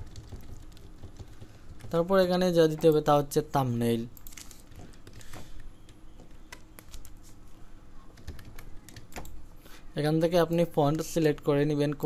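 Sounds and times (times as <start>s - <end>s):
keyboard typing: 0.0s - 3.2s, 4.0s - 7.4s, 8.0s - 9.4s.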